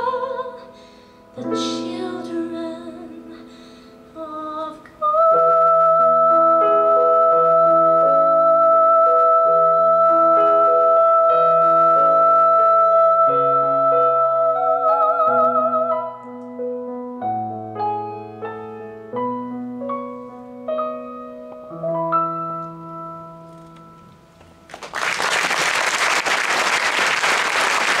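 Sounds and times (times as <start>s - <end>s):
woman singing: 0.0s - 0.8s, 1.4s - 16.2s
piano chords: 0.0s - 24.9s
audience applause: 24.7s - 28.0s.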